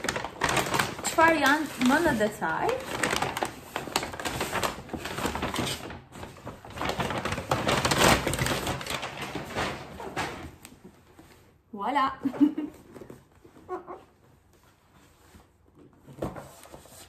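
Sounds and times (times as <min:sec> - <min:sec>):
packaging rustling and crinkling: 0:00.0 - 0:11.6.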